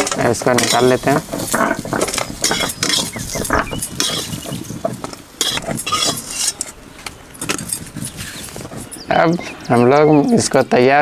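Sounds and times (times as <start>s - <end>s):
metal spatula scraping a pan: 0.0s - 6.8s.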